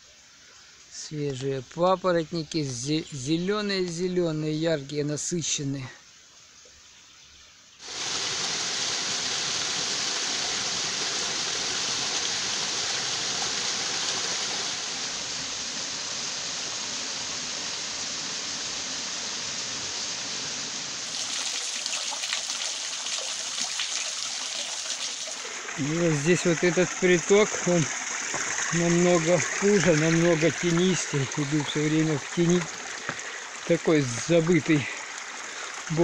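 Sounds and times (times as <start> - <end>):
faint hiss: 0.0 - 36.0
water rushing down waterfall: 7.8 - 36.0.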